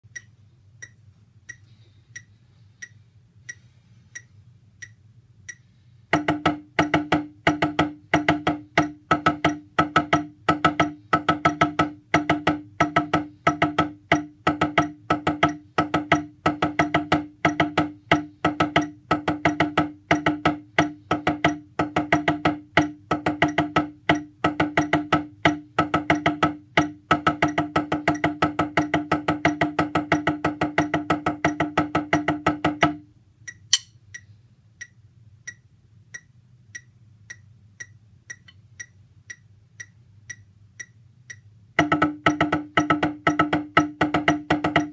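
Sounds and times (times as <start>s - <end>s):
drumsticks knocking wooden pads: 6.2s - 33.0s, 33.7s - 33.9s, 41.8s - 44.9s.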